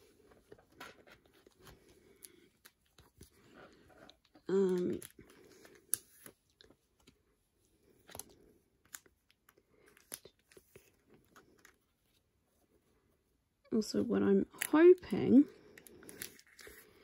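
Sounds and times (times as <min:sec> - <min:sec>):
plastic binder pages rustling: 0:00.0 - 0:12.3.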